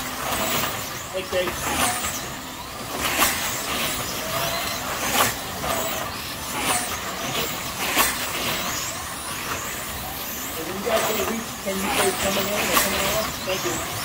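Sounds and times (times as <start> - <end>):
slot car motors whirring: 0.0 - 14.0
slot cars passing close: 0.0 - 14.0.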